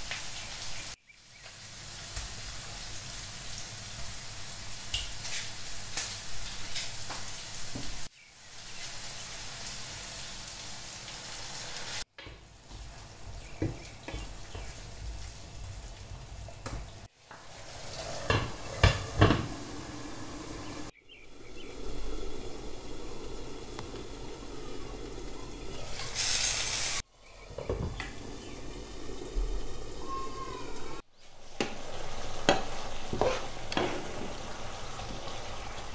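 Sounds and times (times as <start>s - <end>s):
vegetables sizzling in a frying pan: 0.0s - 13.9s, 21.5s - 27.0s, 31.2s - 35.9s
wooden spatula scraping and tapping: 32.4s - 34.1s.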